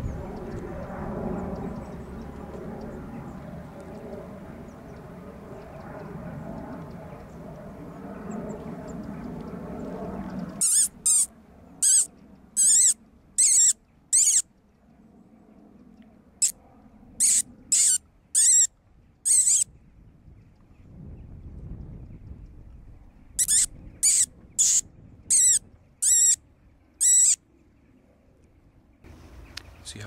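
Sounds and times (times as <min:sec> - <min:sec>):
high warbling mouth squeals: 0:10.6 - 0:14.4, 0:17.2 - 0:18.7, 0:19.3 - 0:19.6, 0:23.4 - 0:26.4, 0:27.0 - 0:27.4.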